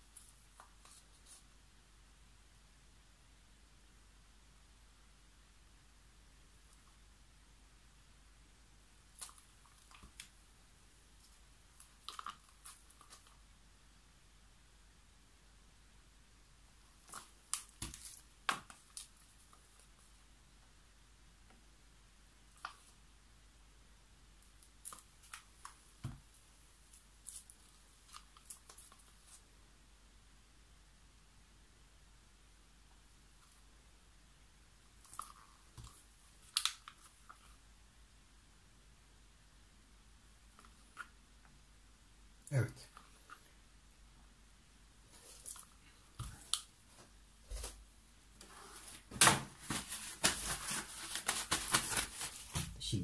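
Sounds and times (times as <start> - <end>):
crinkly rustles and clicks: 48.4 - 52.8.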